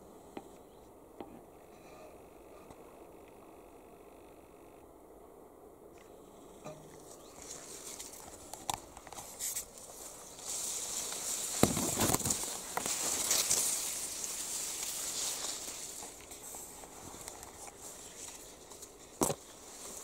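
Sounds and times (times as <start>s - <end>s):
reed stems rustling: 6.0s - 20.0s
footsteps: 6.7s - 20.0s.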